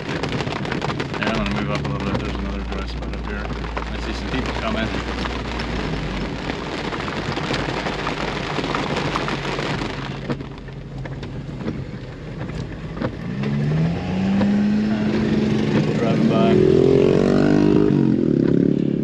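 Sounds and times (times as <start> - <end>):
rain on a vehicle roof: 0.0 - 19.0
vehicle accelerating: 11.6 - 19.0.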